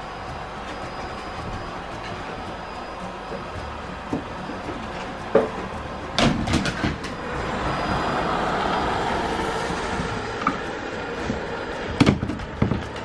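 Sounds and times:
knocks and clatters: 3.3 - 7.2, 9.8 - 13.0.

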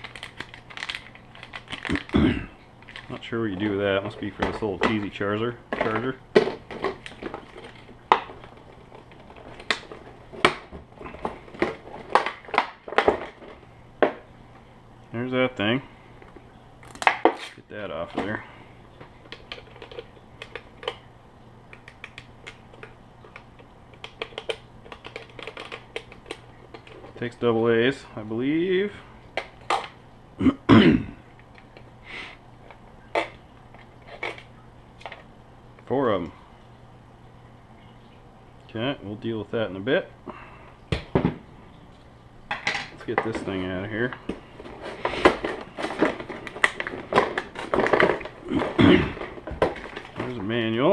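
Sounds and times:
sharp plastic clicks and knocks: 21.7 - 27.2.

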